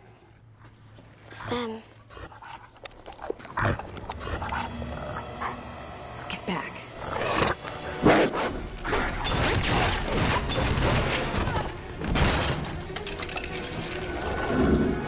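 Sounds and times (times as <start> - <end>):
film music: 3.0 - 15.0
crashes and thuds: 9.0 - 12.9.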